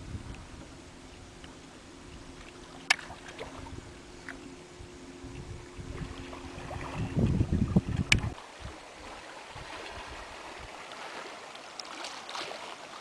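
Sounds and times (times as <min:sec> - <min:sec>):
steady low hum: 0:00.0 - 0:11.5
faint water sounds: 0:00.0 - 0:13.0
wind buffeting microphone: 0:04.7 - 0:08.8.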